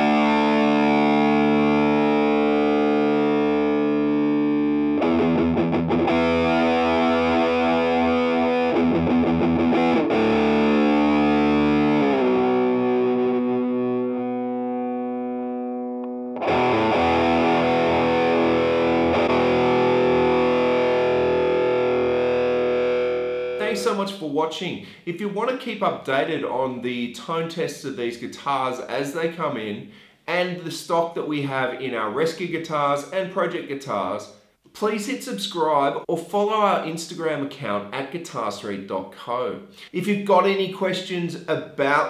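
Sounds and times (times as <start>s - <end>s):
distorted electric guitar: 0.0s - 23.9s.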